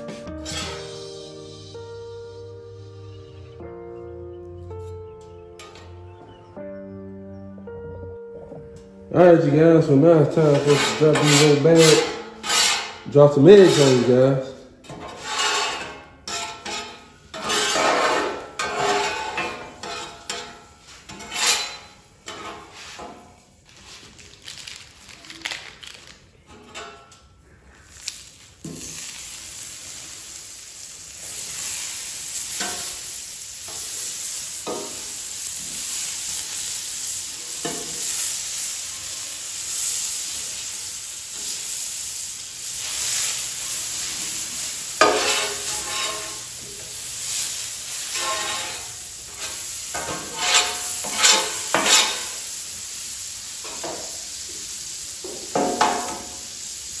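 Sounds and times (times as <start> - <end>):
metal spatula scraping plate: 0.3 - 1.0, 10.3 - 14.2, 14.8 - 23.2, 45.0 - 46.5, 48.0 - 52.4
butter sizzling on griddle: 14.9 - 24.4, 27.8 - 57.0.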